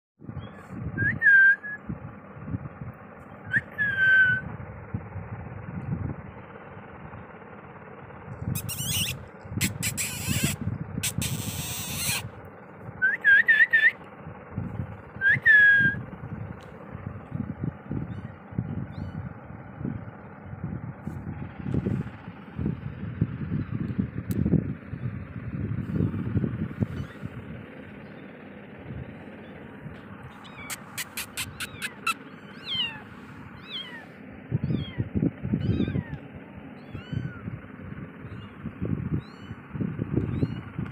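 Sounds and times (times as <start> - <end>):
kittens mewing: 8.6 - 12.4, 26.2 - 27.8, 29.0 - 40.9
scratchy noises: 30.7 - 32.1.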